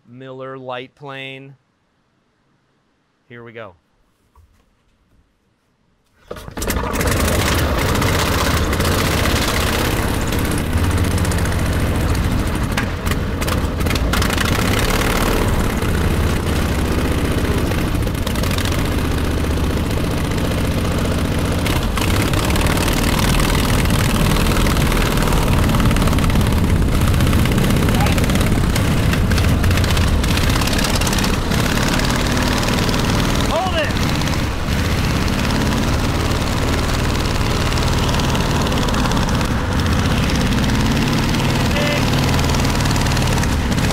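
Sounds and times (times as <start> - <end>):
propeller engine running loud: 6.4 - 43.9.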